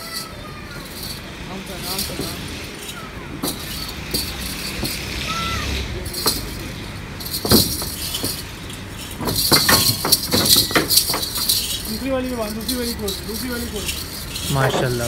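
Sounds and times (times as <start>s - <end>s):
hooves knocking on wooden ramp: 9.1s - 11.8s.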